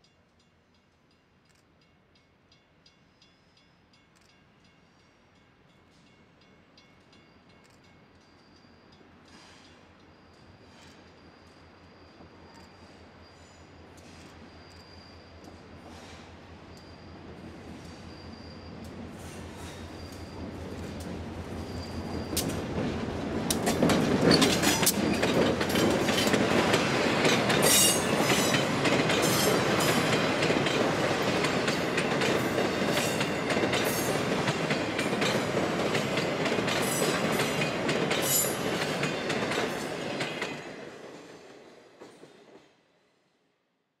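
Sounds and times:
diesel locomotive passing: 6.0s - 42.8s
train wheels clacking over rail joints: 19.2s - 41.3s.

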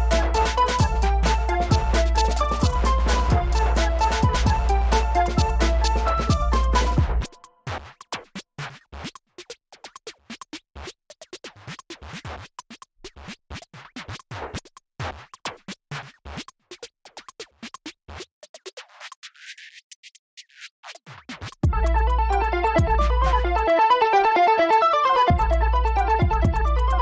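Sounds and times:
electronic music beat: 0.0s - 8.0s, 21.1s - 27.0s
choppy stutters and clicks: 0.0s - 27.0s.

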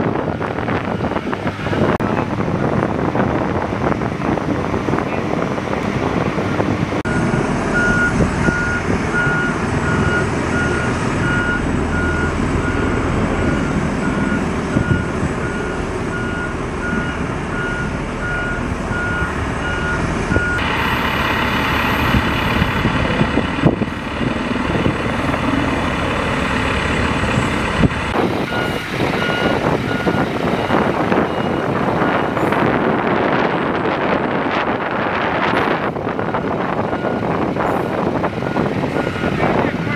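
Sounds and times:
diesel truck engine running: 0.0s - 39.9s
reversing alarm beeping: 7.1s - 20.7s, 28.3s - 32.9s, 36.3s - 39.9s.

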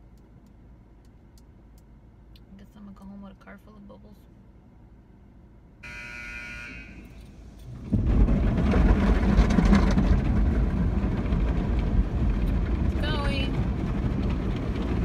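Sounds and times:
buzzer: 5.8s - 7.2s
car wash machinery and water spray: 5.9s - 15.0s.

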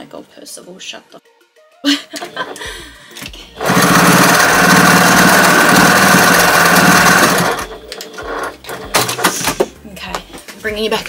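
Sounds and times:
sewing machine stitching: 3.6s - 9.2s.

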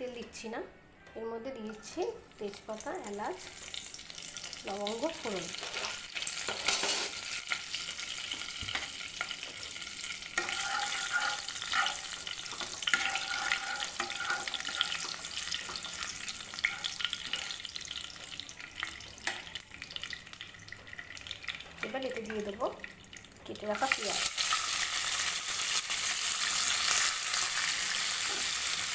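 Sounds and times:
spices sizzling in hot oil: 1.8s - 28.9s.

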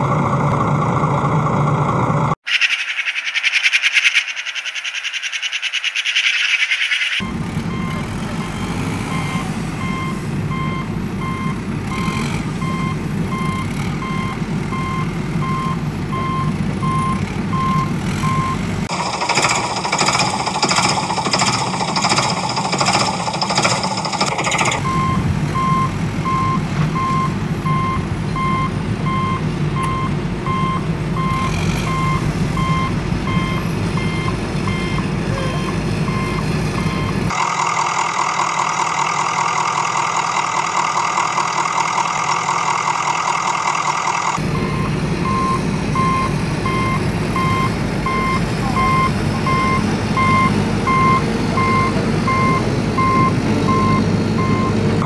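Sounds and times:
heavy truck engine running: 0.0s - 2.4s, 7.2s - 55.0s
high-pitched pulsing mechanical whir: 2.1s - 28.2s
reversing alarm beeping: 5.9s - 37.6s, 43.8s - 55.0s.

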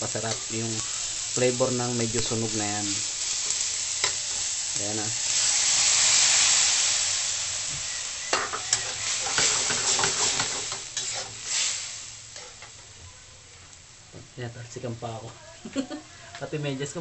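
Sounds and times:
hot oil spattering: 0.0s - 13.0s
food sizzling in hot oil: 0.0s - 17.0s
metal spatula scraping wok: 7.9s - 12.8s.

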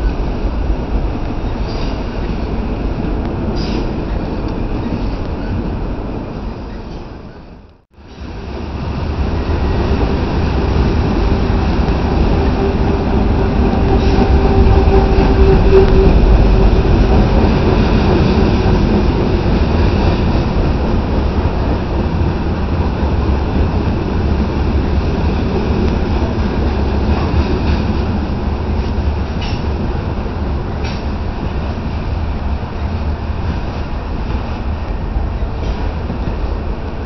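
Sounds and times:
train wheels rumbling on rails: 0.0s - 37.0s.

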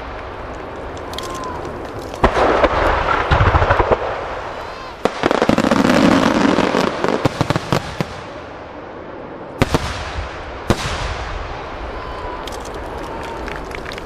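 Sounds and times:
crackling firework bursts: 0.0s - 8.8s, 9.5s - 14.0s
loud firework bangs: 2.2s - 8.8s, 9.6s - 11.9s.

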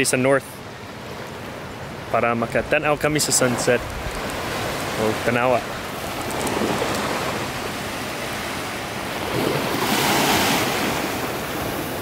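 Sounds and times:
waves lapping on sand: 0.7s - 12.0s
wind on microphone: 2.6s - 5.0s, 5.7s - 12.0s.

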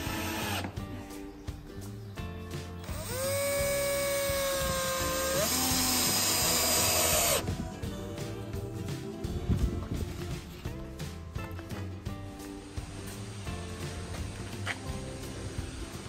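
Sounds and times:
cordless drill motor whining: 0.0s - 0.8s, 2.8s - 7.5s.

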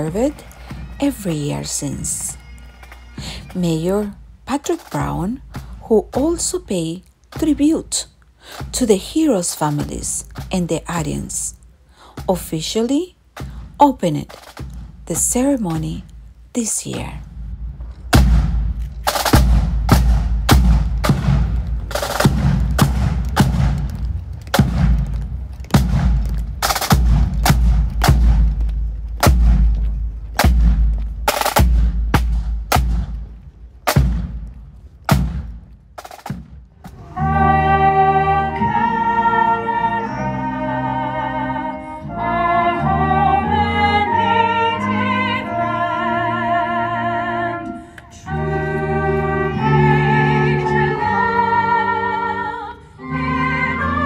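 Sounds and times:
bass drum beats: 3.2s - 11.6s, 12.2s - 37.0s
snare drum strokes: 18.1s - 25.1s, 25.7s - 28.6s, 29.2s - 29.8s, 30.4s - 37.0s
person singing with vibrato: 37.0s - 54.0s.

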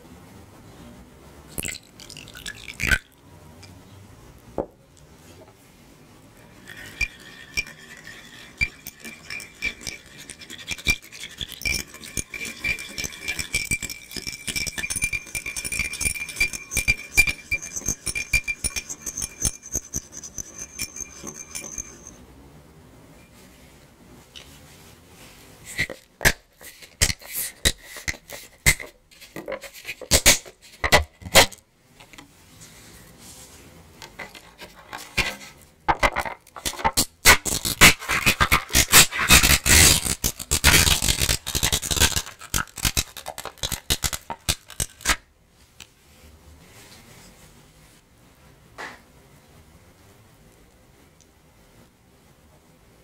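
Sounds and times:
whisk rattling against dish: 6.5s - 22.2s, 37.8s - 45.1s
sharp knocks and clinks: 6.6s - 22.2s.

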